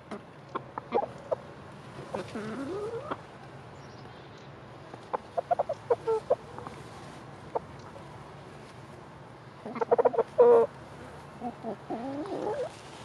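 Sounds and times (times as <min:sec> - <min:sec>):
chicken clucking: 0:00.1 - 0:03.3, 0:05.0 - 0:06.9, 0:09.6 - 0:10.7, 0:11.4 - 0:12.8.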